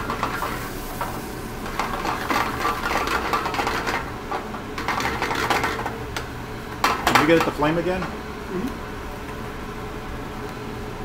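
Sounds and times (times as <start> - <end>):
skillet rattling on burner grate: 0.0 - 6.0, 6.8 - 8.2.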